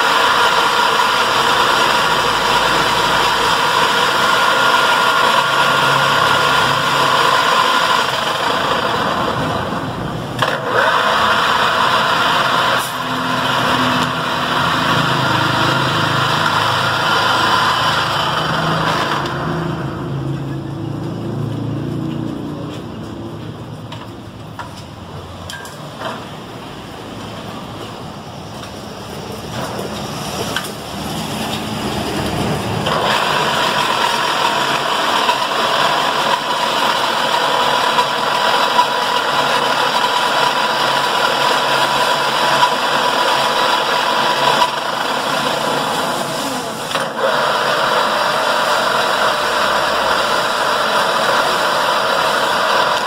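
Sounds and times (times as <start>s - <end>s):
pillar drill motor humming: 0.0s - 20.5s, 32.8s - 53.0s
gear whine: 0.0s - 22.9s.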